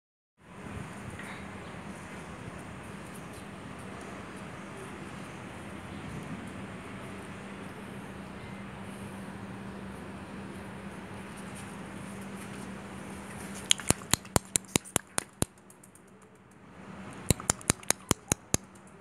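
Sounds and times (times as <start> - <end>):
rapid sharp clicks: 13.6 - 19.0.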